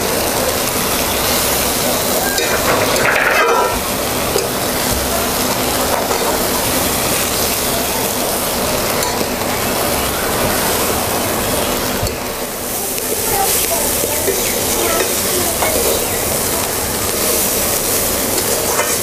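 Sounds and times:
greens sizzling in hot oil: 0.0 - 19.0
spatula scraping pan: 2.2 - 3.8.

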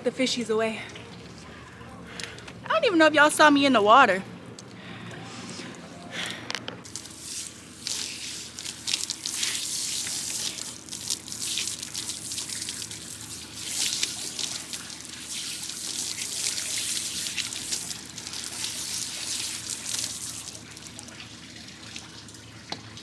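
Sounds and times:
water splashing and sloshing: 6.8 - 23.0.

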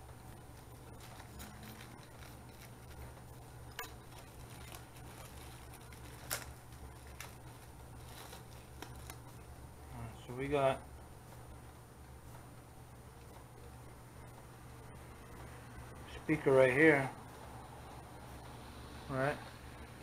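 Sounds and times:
low steady hum: 0.0 - 20.0
plastic bag crinkling: 0.6 - 9.4.

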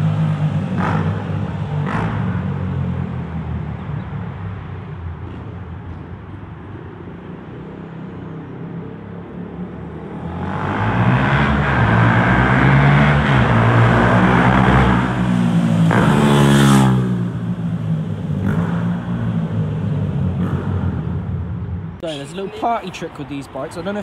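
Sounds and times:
motorcycle accelerating past: 0.0 - 3.1, 10.0 - 21.4.

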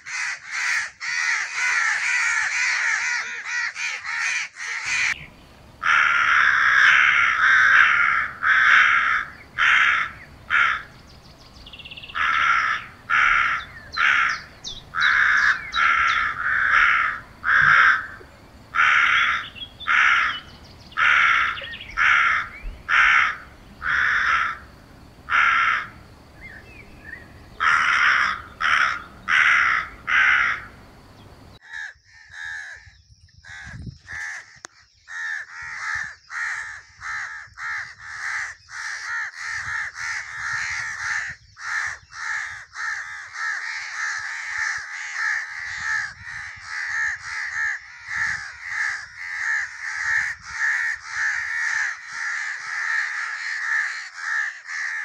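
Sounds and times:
crows cawing: 0.0 - 5.2, 5.8 - 11.0, 12.0 - 26.0, 27.6 - 30.8, 31.6 - 55.0
background hiss: 4.9 - 31.6.

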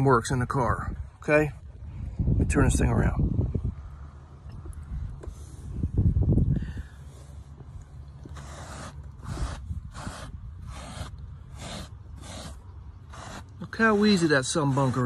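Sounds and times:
brush scraping carpet: 8.2 - 15.0.

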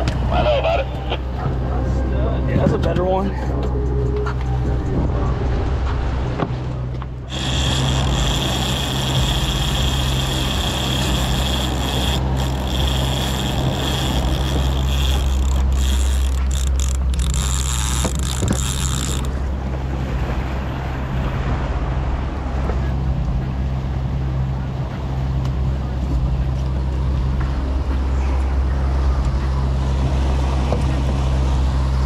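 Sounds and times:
outboard motor droning: 0.0 - 32.0
fishing reel gear whine: 7.2 - 19.6.

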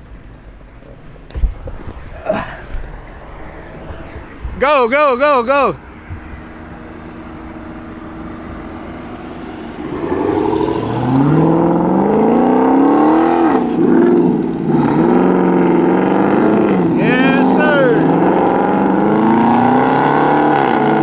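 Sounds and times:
car engine revving: 5.4 - 21.0.

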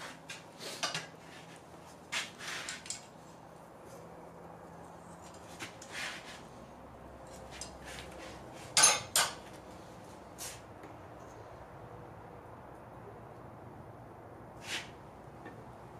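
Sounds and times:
metal tools clanking on anvil: 8.8 - 9.4.

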